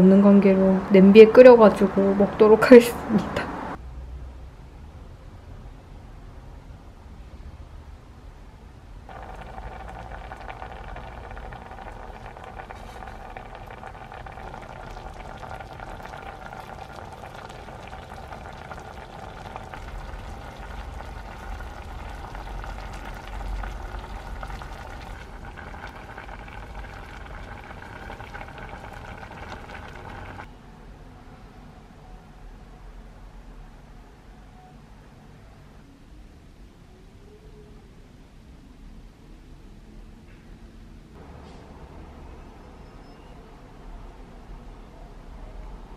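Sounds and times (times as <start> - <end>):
sauce boiling and bubbling: 9.1 - 30.5.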